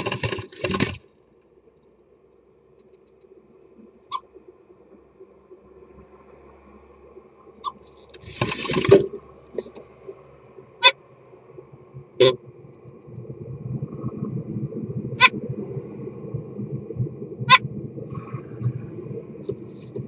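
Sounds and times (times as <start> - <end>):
wings fluttering: 7.6 - 9.7.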